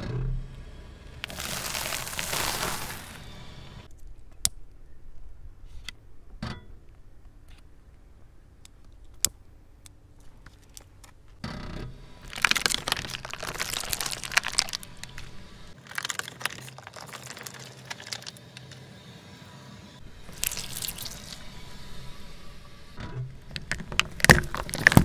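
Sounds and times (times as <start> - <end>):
low steady hum: 0.0 - 15.8, 19.8 - 25.0
plastic tub crackling and crunching: 1.2 - 3.9, 12.2 - 18.8, 20.2 - 21.5, 23.5 - 25.0.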